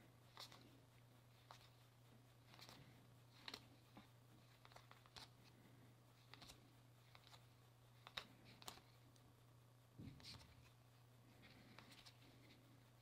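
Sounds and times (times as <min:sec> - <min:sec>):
steady low hum: 0:00.0 - 0:13.0
paper cards flicking and sliding: 0:00.3 - 0:00.8, 0:01.4 - 0:01.8, 0:02.4 - 0:05.5, 0:06.2 - 0:09.0, 0:11.4 - 0:12.5.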